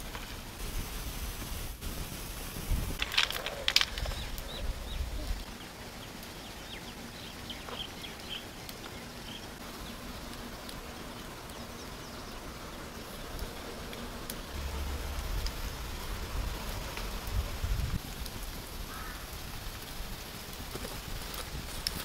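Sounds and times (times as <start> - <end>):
outdoor hiss: 0.0 - 22.0
small birds chirping: 3.3 - 18.0.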